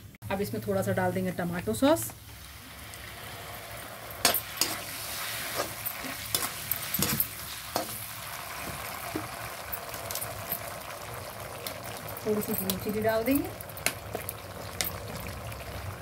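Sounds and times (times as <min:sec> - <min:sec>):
vegetables sizzling in hot oil: 0:01.4 - 0:16.0
skimmer scraping and knocking pan: 0:04.1 - 0:10.6.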